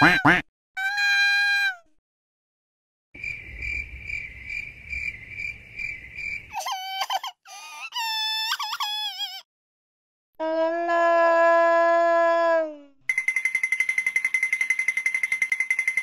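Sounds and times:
cartoon cricket chirping: 3.2 - 6.5, 13.1 - 16.0.

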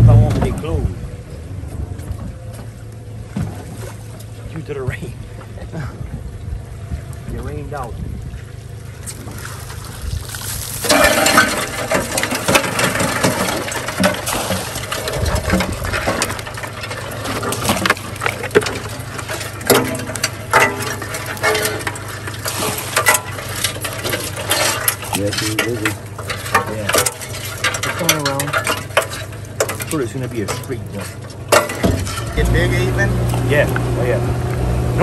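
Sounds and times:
steady low hum: 0.0 - 35.0
water splashing: 2.3 - 34.9
crawfish clattering on metal: 9.0 - 33.8.

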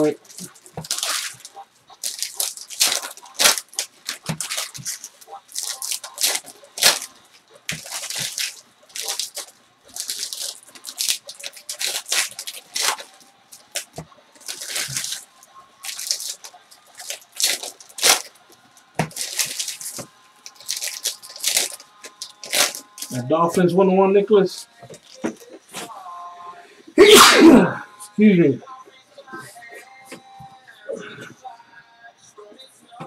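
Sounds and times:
foil wrappers crinkling and tearing: 0.0 - 23.3, 24.5 - 25.6.

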